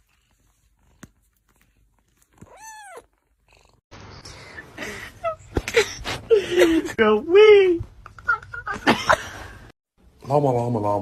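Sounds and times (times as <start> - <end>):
kitten meowing: 2.4 - 3.1.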